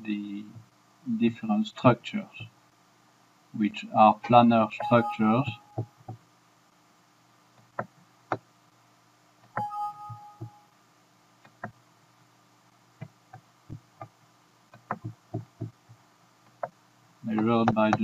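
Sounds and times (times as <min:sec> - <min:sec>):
two-tone warning chime: 0:04.8 - 0:05.8, 0:09.6 - 0:10.6.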